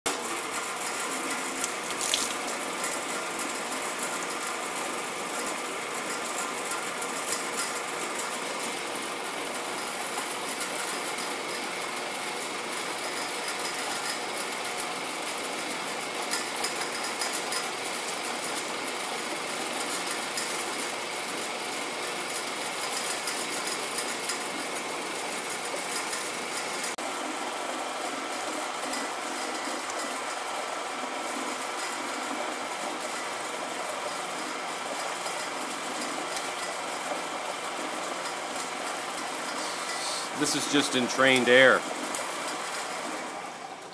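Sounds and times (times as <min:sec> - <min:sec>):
water churning hiss: 0:39.6 - 0:40.5.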